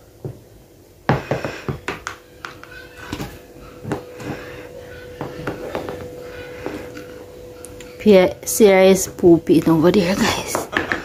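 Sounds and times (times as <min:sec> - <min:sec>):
faint steady hum: 0:00.0 - 0:11.0
toy tapping on tile floor: 0:01.1 - 0:04.3, 0:10.5 - 0:11.0.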